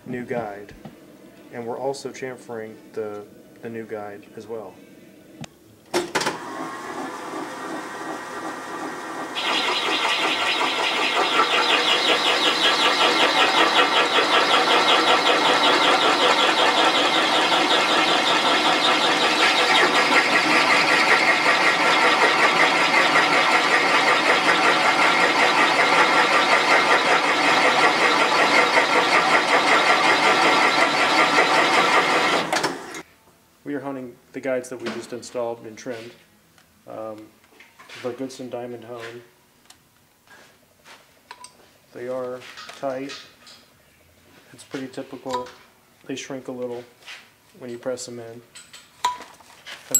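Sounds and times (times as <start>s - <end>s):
cutter grinding metal: 7.4s - 33.0s.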